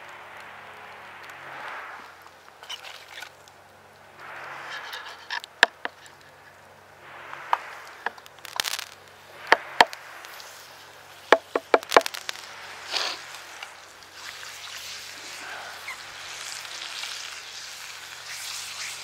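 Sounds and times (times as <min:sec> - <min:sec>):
meat sizzling in skillet: 0:07.4 - 0:19.0
wooden knocks and clacks: 0:11.3 - 0:12.1.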